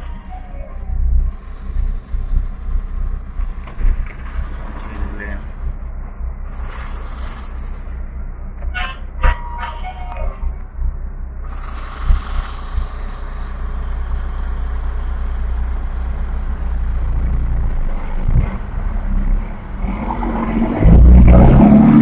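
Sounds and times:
diesel truck engine idling: 0:00.0 - 0:20.4
air hiss: 0:11.4 - 0:13.4.

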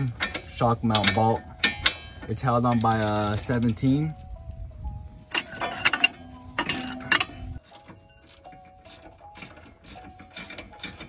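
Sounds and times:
ratchet clicking: 0:00.0 - 0:03.7, 0:05.3 - 0:11.0
wrench clacks on bolt: 0:00.0 - 0:03.8.

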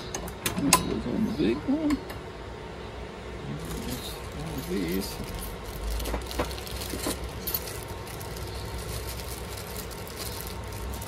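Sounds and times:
low steady hum: 0:00.0 - 0:11.0
metal tools rattling in plastic bag: 0:03.6 - 0:11.0.

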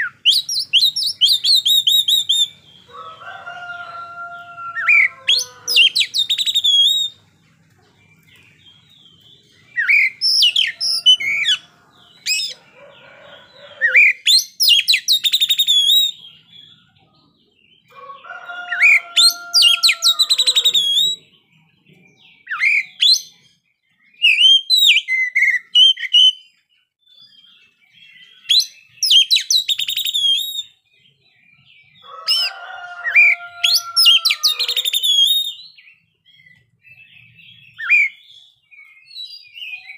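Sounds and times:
bird singing whistles and trills: 0:00.0 - 0:02.8, 0:04.8 - 0:07.2, 0:08.2 - 0:12.7, 0:13.6 - 0:17.0, 0:18.7 - 0:21.4, 0:22.1 - 0:32.5, 0:33.1 - 0:39.9
drawn-out crowing call: 0:02.9 - 0:06.3, 0:09.9 - 0:14.1, 0:17.9 - 0:21.2, 0:32.0 - 0:35.2.

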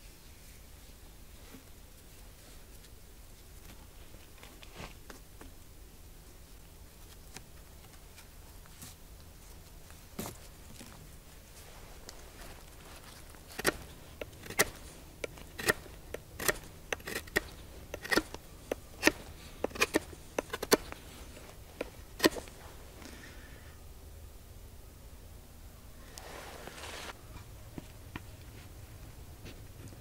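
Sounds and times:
knife whittling wood: 0:13.5 - 0:22.6.

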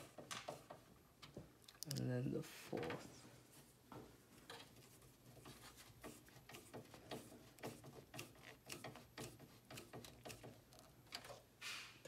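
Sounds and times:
small clicks and scrapes: 0:04.4 - 0:11.4.

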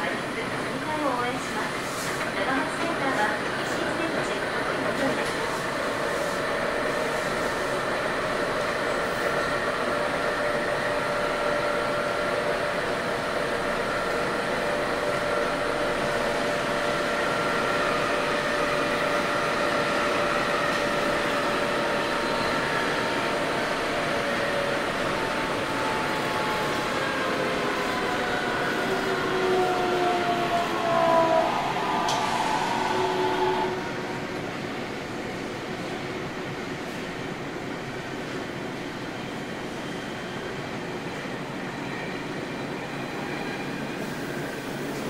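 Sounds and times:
train wheels rumbling on rail: 0:00.0 - 0:45.0.

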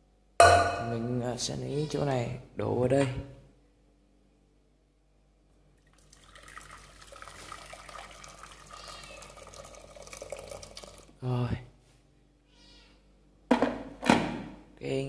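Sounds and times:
water pouring into a metal pot: 0:05.8 - 0:11.2.

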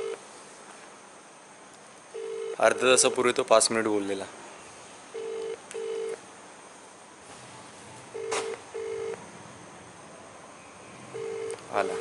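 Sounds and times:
phone ringback tone: 0:00.0 - 0:00.2, 0:02.2 - 0:02.7, 0:05.1 - 0:06.2, 0:08.1 - 0:09.2, 0:11.2 - 0:12.0
short low beeps: 0:11.2 - 0:12.0.

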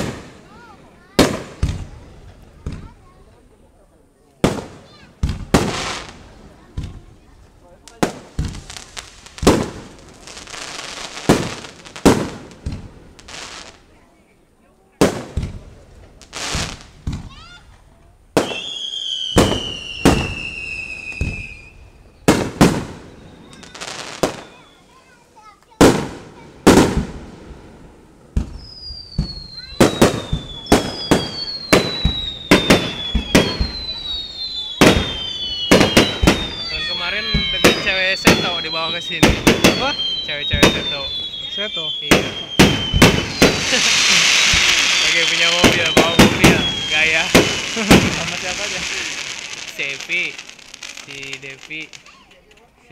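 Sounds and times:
crackling hiss: 0:00.0 - 0:52.9
firework shells bursting: 0:25.8 - 0:52.7.

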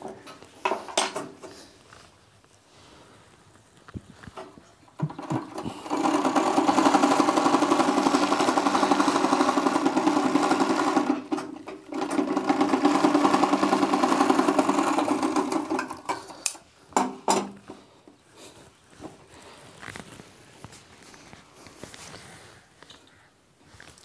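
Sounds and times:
overlock sewing machine running: 0:05.0 - 0:16.2.

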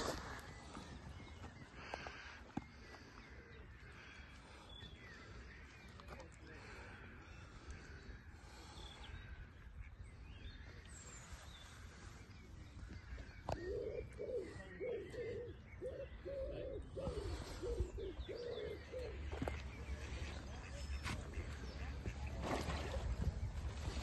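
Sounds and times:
bird low repeated call: 0:12.9 - 0:21.0.

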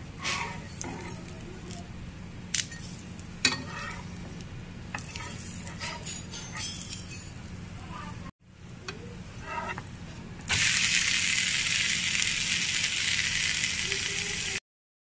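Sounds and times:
dosa sizzling on a griddle: 0:00.2 - 0:01.8, 0:02.6 - 0:07.6, 0:09.3 - 0:14.6.

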